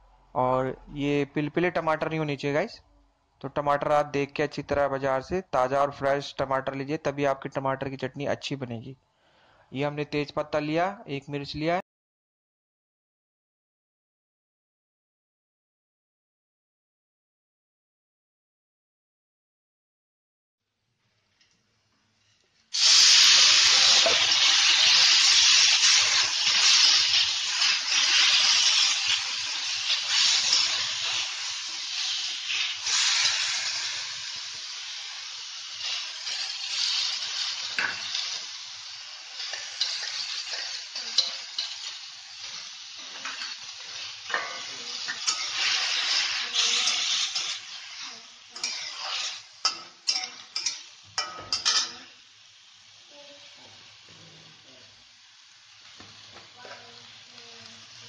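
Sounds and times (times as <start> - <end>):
tomatoes sizzling in hot oil: 22.7 - 58.0
metal spatula scraping a pan: 39.4 - 42.0, 44.3 - 52.0.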